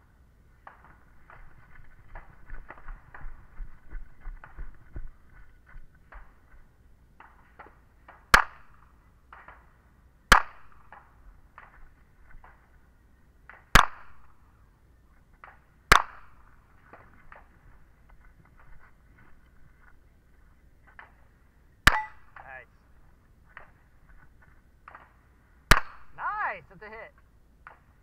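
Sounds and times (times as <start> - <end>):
footsteps on dirt: 0.9 - 6.8, 16.7 - 21.4, 22.9 - 24.7
handgun shots with echo: 10.3 - 11.1, 13.8 - 14.4, 15.9 - 16.5, 21.9 - 22.5, 25.7 - 26.2.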